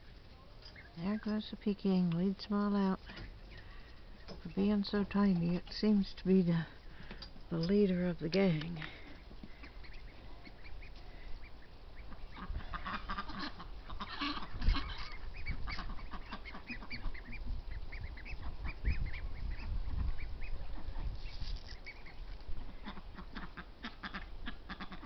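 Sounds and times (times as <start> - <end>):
ducklings calling: 0.0 - 1.7, 6.5 - 25.0
low rumbles on microphone: 17.1 - 21.7.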